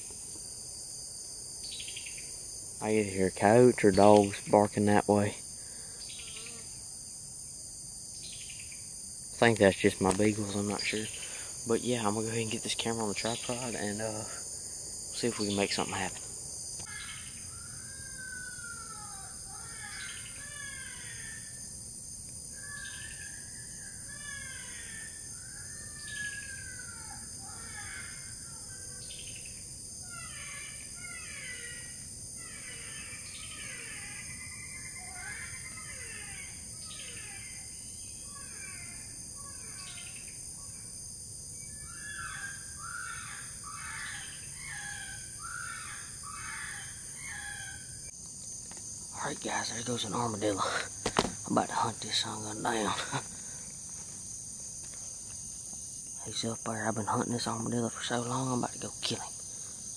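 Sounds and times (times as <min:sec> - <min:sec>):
insects droning: 0:00.0 - 0:59.9
harsh crow-like cries: 0:16.8 - 0:21.6, 0:22.6 - 0:29.2, 0:30.0 - 0:37.6, 0:38.3 - 0:40.1, 0:41.8 - 0:48.0.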